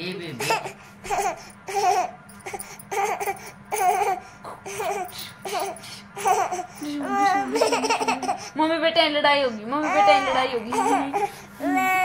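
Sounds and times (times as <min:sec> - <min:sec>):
toddler laughing: 0:00.4 - 0:02.2, 0:02.9 - 0:08.5.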